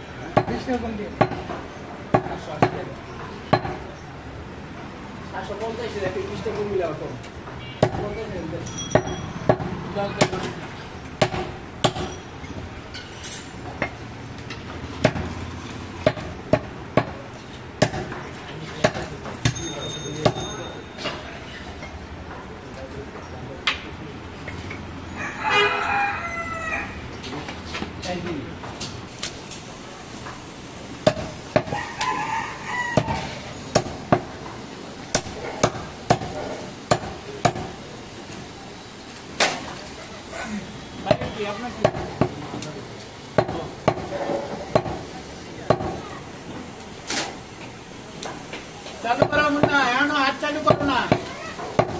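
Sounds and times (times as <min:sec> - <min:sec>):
knife chopping meat on wood block: 0:11.2 - 0:12.1, 0:16.0 - 0:17.2, 0:31.0 - 0:31.8, 0:50.6 - 0:51.9
knife chopping meat on wooden block: 0:31.0 - 0:31.8.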